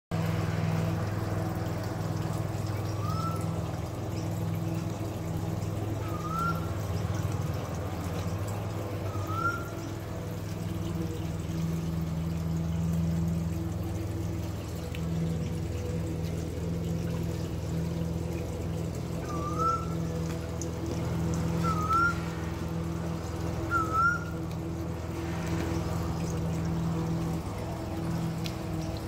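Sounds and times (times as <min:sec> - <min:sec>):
low hum: 0:00.1 - 0:29.0
trickling pouring water: 0:00.1 - 0:29.0
short rising whistle: 0:21.6 - 0:22.7, 0:23.7 - 0:24.4.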